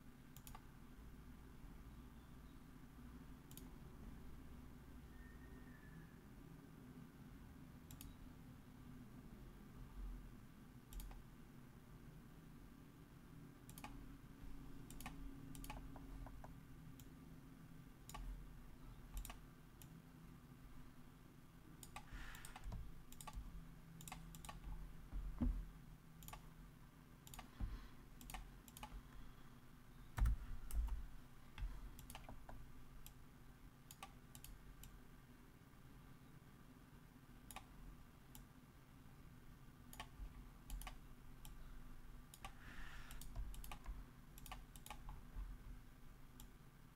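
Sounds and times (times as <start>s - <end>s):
low steady hum: 0.0s - 46.9s
mouse and keyboard clicks: 13.7s - 14.0s, 14.8s - 17.1s, 19.1s - 20.0s, 21.8s - 24.8s, 27.2s - 27.6s, 28.2s - 29.0s, 31.6s - 33.2s, 42.3s - 45.2s.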